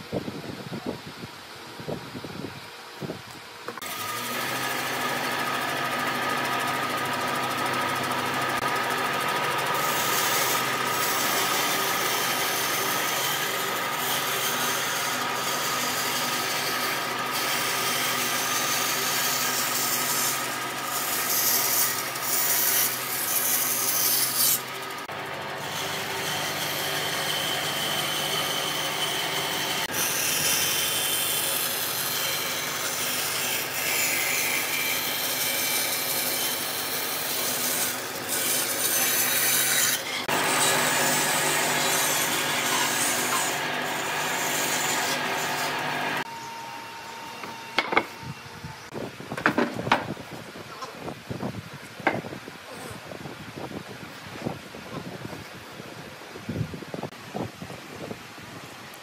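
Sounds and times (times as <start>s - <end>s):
power tool motor hum: 3.7s - 49.0s.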